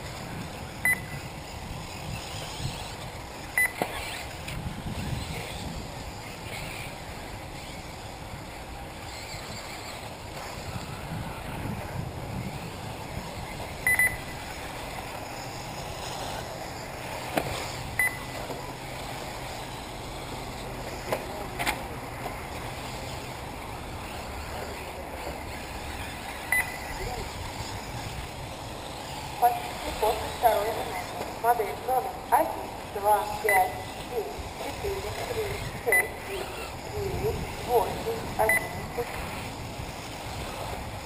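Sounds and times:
faint whir of rc buggies: 0.0 - 41.0
short high electronic beep: 26.5 - 26.9.

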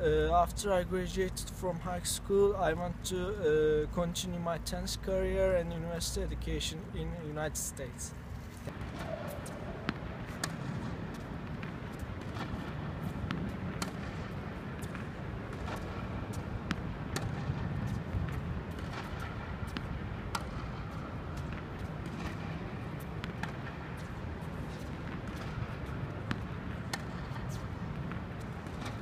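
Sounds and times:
low rumble of outdoor noise: 0.0 - 29.0
tennis balls struck and bouncing: 8.7 - 29.0.

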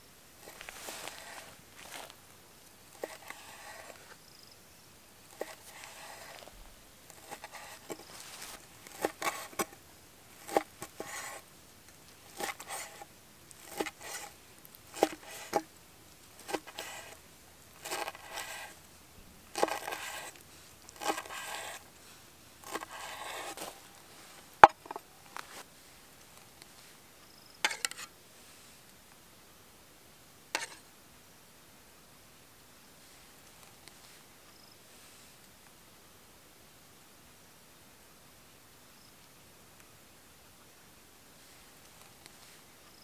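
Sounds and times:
cleaver cutting on wooden board: 0.5 - 2.1, 3.0 - 4.1, 5.3 - 6.5, 7.1 - 9.8, 10.4 - 11.4, 12.3 - 15.7, 16.4 - 17.2, 17.8 - 18.8, 19.5 - 21.9, 22.6 - 23.8, 24.6 - 25.6, 27.6 - 28.1.

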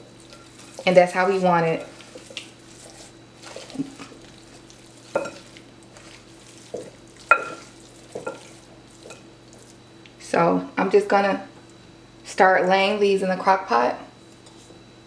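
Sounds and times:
wet squishing and rubbing: 0.2 - 9.8.

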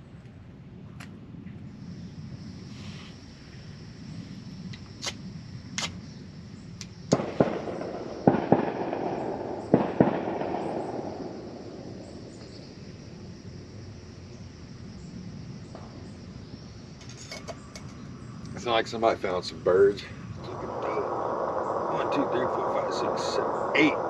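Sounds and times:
echoing gunshots: 7.1 - 12.7.

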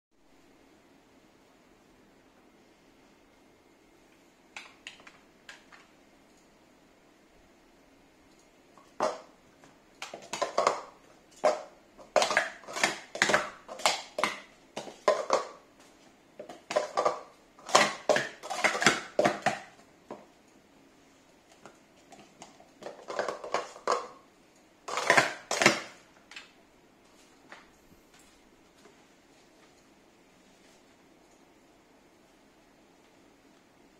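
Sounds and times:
plastic cups clattering: 8.8 - 9.4, 10.0 - 20.3, 21.5 - 26.6.

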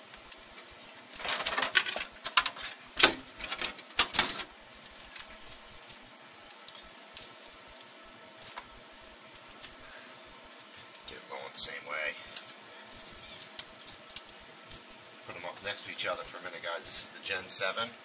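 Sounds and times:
hard objects clattering: 1.2 - 4.5.

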